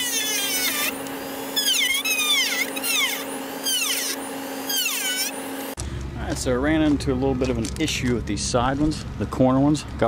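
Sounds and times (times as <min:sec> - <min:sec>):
rotary tool cutting whine: 0:00.0 - 0:05.8.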